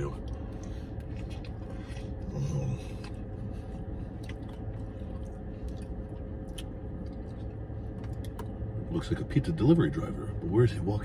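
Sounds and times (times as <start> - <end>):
man chewing food: 0.0 - 8.7
steady low hum: 0.0 - 11.0.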